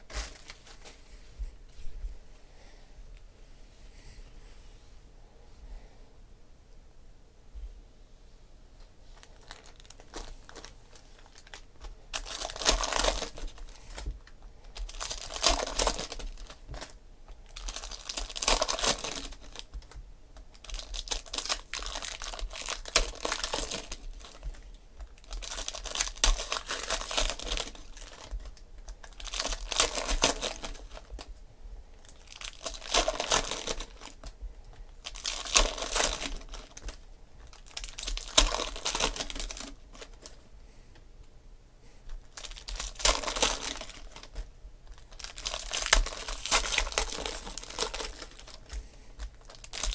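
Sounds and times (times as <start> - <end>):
foil wrappers crinkling and tearing: 0.0 - 1.0, 9.1 - 31.3, 32.0 - 40.4, 42.1 - 49.9.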